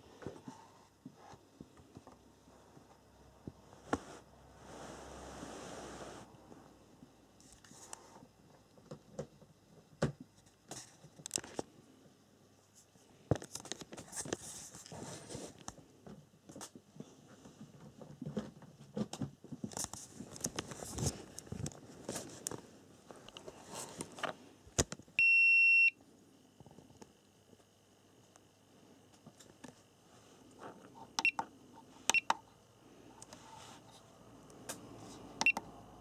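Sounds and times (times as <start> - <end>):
clicks and rustling handling charger: 10.7 - 11.7, 13.4 - 14.4.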